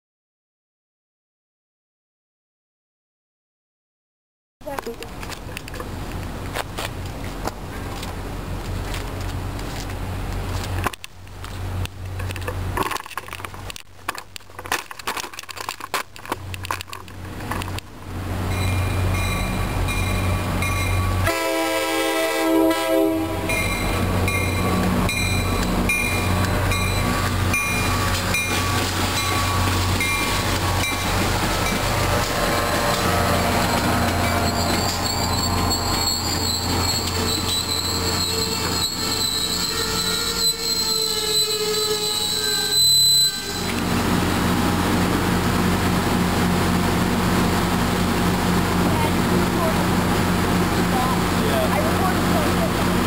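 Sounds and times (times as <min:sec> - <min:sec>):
diesel locomotive drone: 0:04.6 - 0:14.2, 0:16.2 - 0:53.0
wheels squealing on rails: 0:18.4 - 0:44.8
train horn blast: 0:21.1 - 0:23.6, 0:32.1 - 0:43.9.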